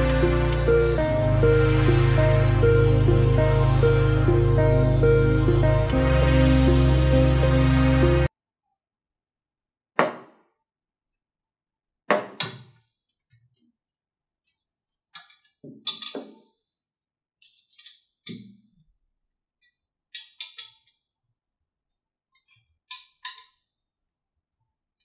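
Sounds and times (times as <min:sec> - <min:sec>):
metal parts clinking and knocking: 0:15.2 - 0:16.4.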